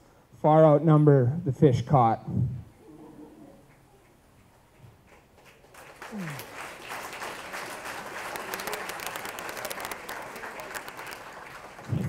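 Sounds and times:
guests applauding: 3.6 - 12.0.

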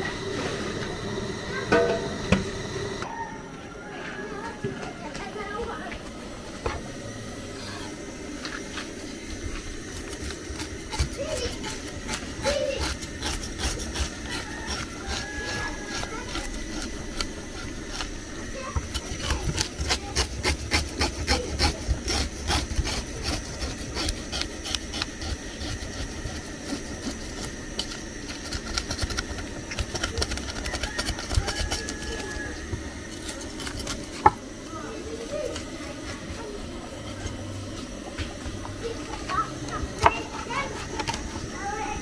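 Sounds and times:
knife scraping fish scales: 9.7 - 37.4, 39.1 - 42.0.

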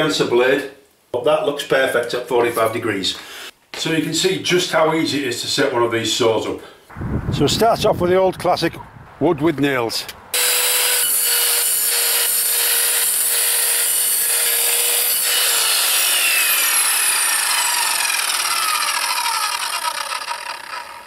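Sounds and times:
mitre saw motor starting: 10.4 - 21.0
saw blade cutting timber: 10.4 - 21.0
saw blade winding down: 10.4 - 21.0.

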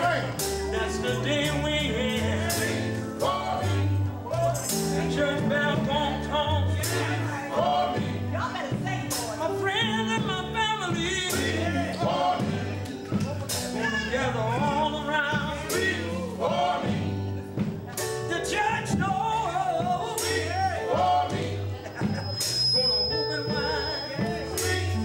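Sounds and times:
male lead singer: 0.0 - 16.9, 18.2 - 22.2
backing singers: 0.0 - 25.0
gospel band playing: 0.0 - 25.0.

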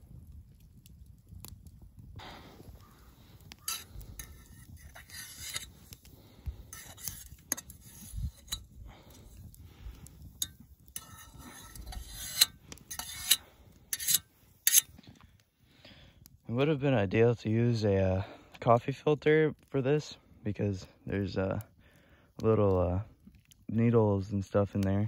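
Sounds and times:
metal fork scraping metal pot: 3.4 - 9.5, 10.2 - 15.0.

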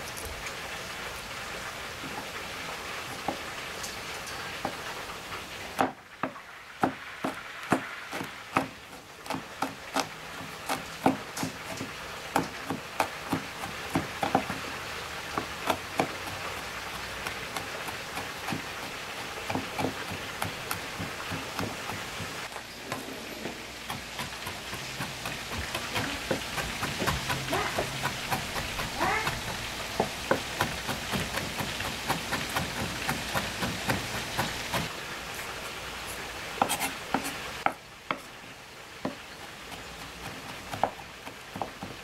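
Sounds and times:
knife chopping on wooden board: 5.8 - 14.7, 15.3 - 16.6, 17.2 - 34.9, 36.6 - 38.3, 40.0 - 42.0.

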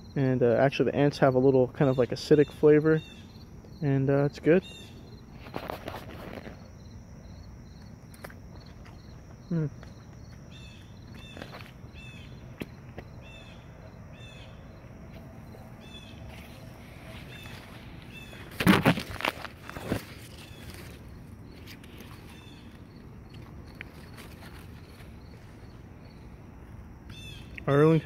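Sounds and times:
insect chirps: 0.0 - 28.0
insects droning: 0.0 - 28.0
man humming: 9.5 - 9.9
rustling: 16.2 - 25.7.

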